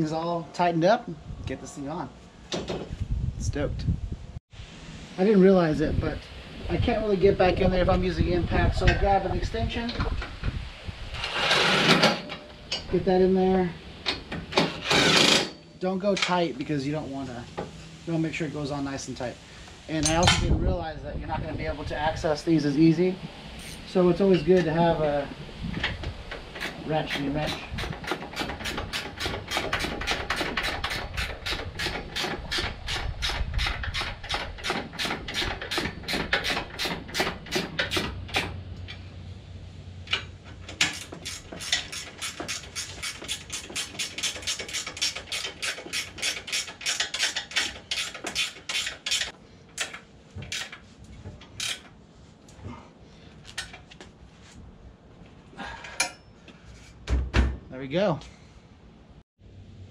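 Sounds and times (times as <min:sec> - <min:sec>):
hand ratchet clicking: 0:26.6 - 0:38.6, 0:40.1 - 0:50.8, 0:51.6 - 0:51.9.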